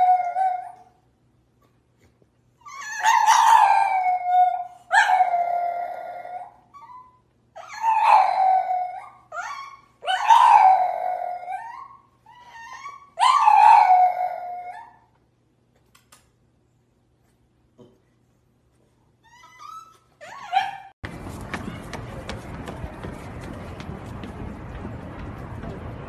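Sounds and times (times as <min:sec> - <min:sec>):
dog yelping: 0:02.6 - 0:15.0, 0:19.2 - 0:21.0
dog howling: 0:07.6 - 0:15.0.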